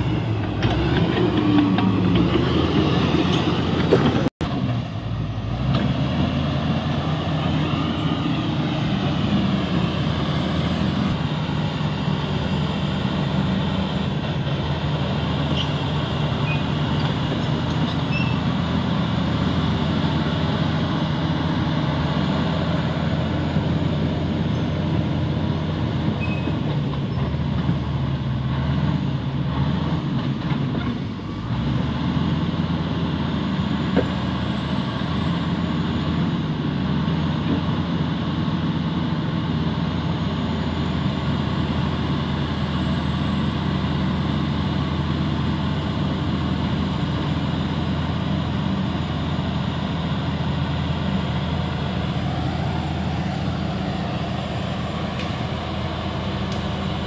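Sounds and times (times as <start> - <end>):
bulldozer diesel engine under load: 0.0 - 57.0.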